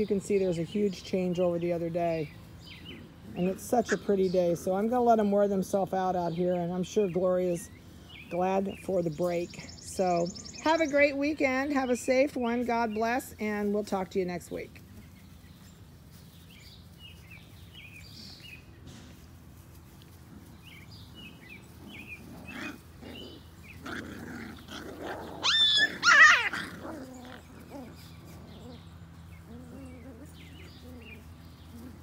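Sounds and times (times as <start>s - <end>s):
puppies growling and yipping: 2.7s - 4.5s, 19.9s - 32.0s
puppy squealing yelp: 25.0s - 27.9s.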